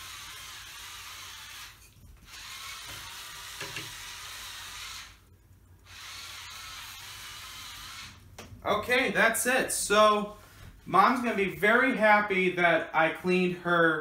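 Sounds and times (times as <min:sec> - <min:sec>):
small motor whirring: 0:00.0 - 0:08.2.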